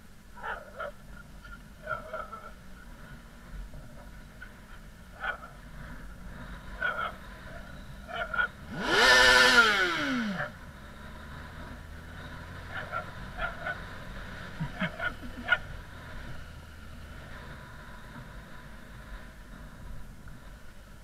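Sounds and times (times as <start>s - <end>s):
motorcycle engine revving: 5.4s - 21.0s.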